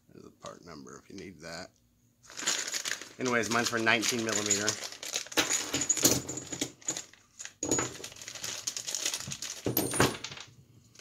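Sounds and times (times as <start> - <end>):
plastic bag crinkling: 2.2 - 6.0, 6.7 - 10.4
metal parts clattering on wood: 4.1 - 8.2, 9.2 - 10.5.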